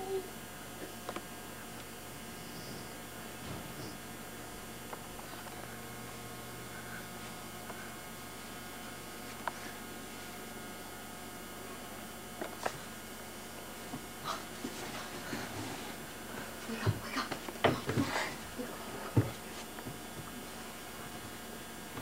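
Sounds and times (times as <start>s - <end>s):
low electrical hum with hiss: 0.0s - 22.0s.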